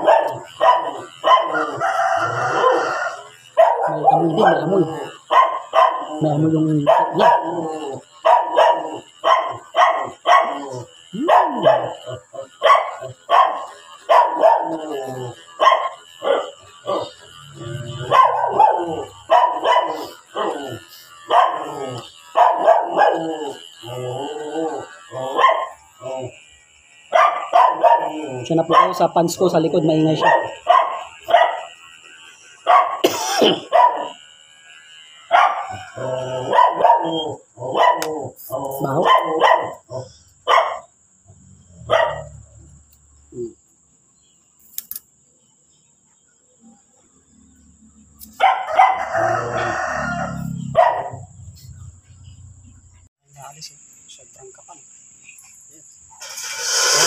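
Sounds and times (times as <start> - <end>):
dog barking: 0.0 - 6.2, 6.8 - 14.9, 15.6 - 17.2, 18.0 - 23.3, 25.2 - 25.8, 27.1 - 29.1, 30.2 - 31.7, 32.6 - 33.0, 33.7 - 34.2, 35.3 - 38.3, 39.0 - 40.9, 41.8 - 42.4, 48.4 - 49.8, 50.6 - 51.3
electric clippers humming: 0.0 - 57.0.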